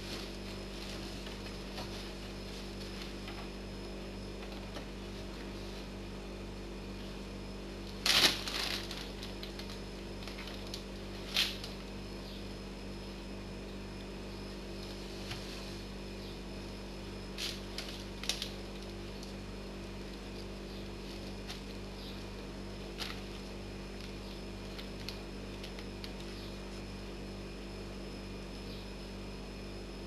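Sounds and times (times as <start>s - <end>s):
plastic bag rustling: 0.0s - 3.4s, 7.9s - 11.8s, 17.3s - 26.7s.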